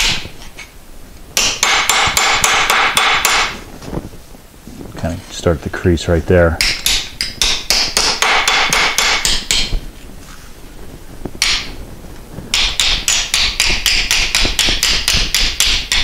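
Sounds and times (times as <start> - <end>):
hammer striking sheet metal: 1.4 - 3.6, 6.6 - 9.8, 11.4 - 11.8, 12.5 - 16.0.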